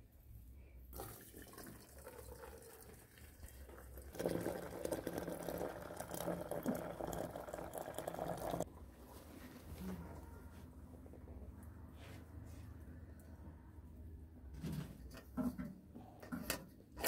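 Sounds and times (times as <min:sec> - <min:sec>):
water pouring into teapot: 0:00.9 - 0:08.7.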